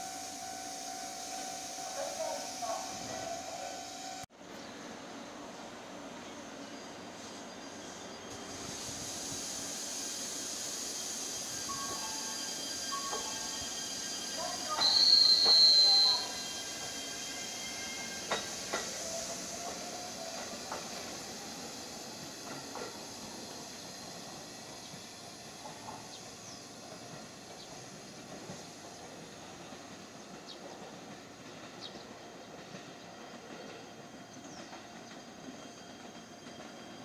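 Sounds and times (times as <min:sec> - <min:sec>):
electric train hissing: 0:00.0 - 0:37.0
faint high squeaks: 0:11.5 - 0:18.8.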